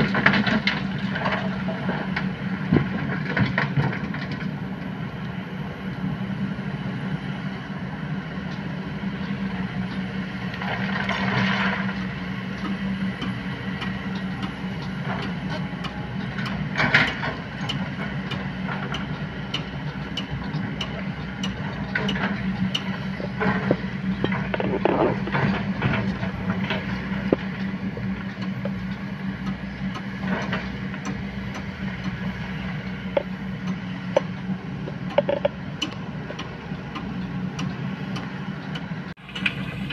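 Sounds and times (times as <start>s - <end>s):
excavator diesel engines running: 0.0s - 39.9s
buckets scraping and knocking rocks: 23.2s - 28.8s.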